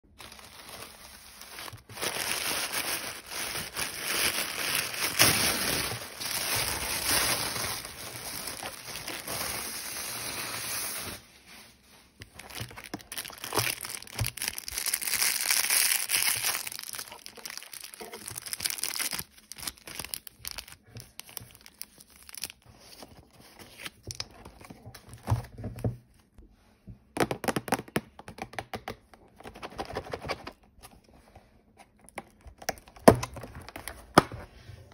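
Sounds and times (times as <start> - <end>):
plastic bag crinkling: 0.1 - 11.2, 12.2 - 22.6
tissue paper crinkling: 0.1 - 23.0.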